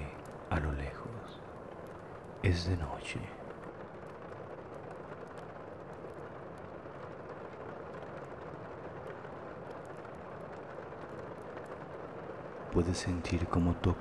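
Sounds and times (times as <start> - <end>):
rain hissing: 0.0 - 14.0.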